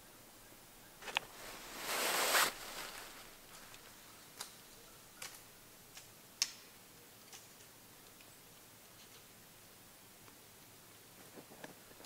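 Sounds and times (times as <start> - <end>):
clothing rustle: 1.0 - 4.1
sharp light ticks and clicks: 3.7 - 4.6, 5.2 - 9.3.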